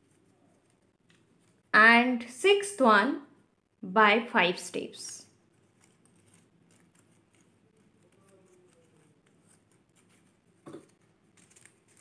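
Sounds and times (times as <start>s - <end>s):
paper rustling and creasing: 5.5s - 12.0s.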